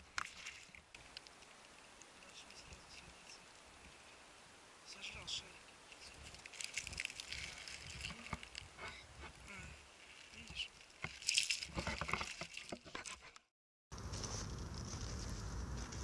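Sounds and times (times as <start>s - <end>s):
steady high hiss: 1.0s - 8.6s
clicks and rustling: 6.0s - 8.7s, 10.2s - 13.5s.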